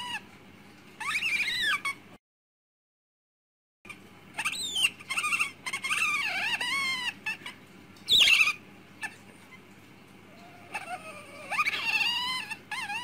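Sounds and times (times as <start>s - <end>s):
small animal squeal: 0.0s - 0.3s, 1.0s - 2.0s, 4.3s - 9.7s, 10.3s - 13.0s
small animal squeaking calls: 1.0s - 2.0s, 3.9s - 9.7s, 10.3s - 13.0s.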